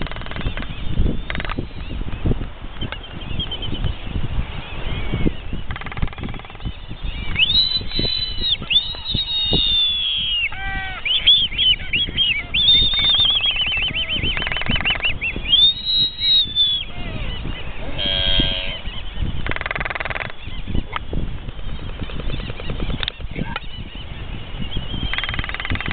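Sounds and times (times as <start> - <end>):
albatrosses whistling and squealing: 0.0 - 25.9
low braying call: 7.8 - 21.0.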